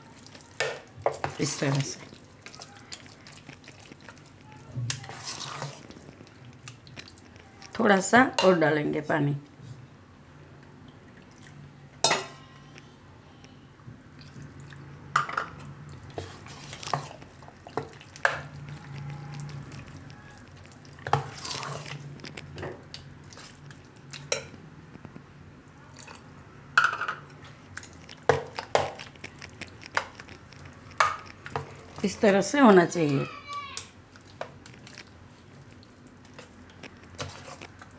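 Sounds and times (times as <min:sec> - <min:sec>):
spoon stirring thick batter: 0:00.0 - 0:08.6, 0:16.0 - 0:25.1, 0:27.4 - 0:37.9.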